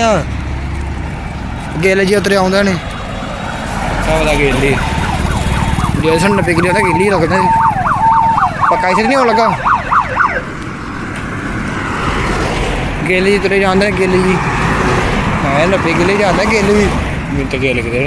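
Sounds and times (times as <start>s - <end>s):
road and wind noise: 0.0s - 18.0s
siren warbling tone: 2.9s - 10.5s.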